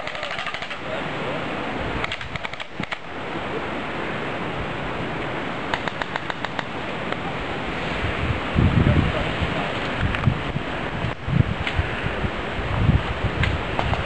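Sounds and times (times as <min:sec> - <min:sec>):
airsoft gun bursts of rapid clicks: 0:00.0 - 0:00.8, 0:02.0 - 0:03.0, 0:05.7 - 0:06.7, 0:13.8 - 0:14.0
wind noise on microphone: 0:00.0 - 0:14.0.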